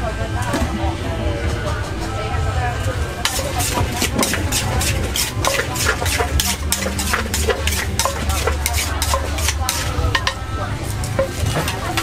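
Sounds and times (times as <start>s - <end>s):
cooking utensils clinking: 3.2s - 12.0s.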